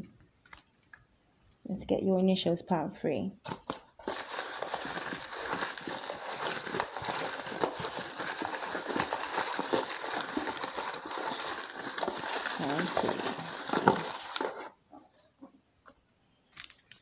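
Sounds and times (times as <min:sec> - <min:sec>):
cards being shuffled: 0:03.4 - 0:14.7.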